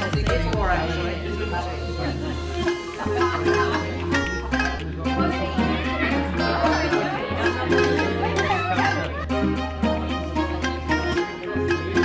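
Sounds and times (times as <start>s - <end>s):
held bass line: 0.0s - 12.0s
plucked-string melody: 0.0s - 12.0s.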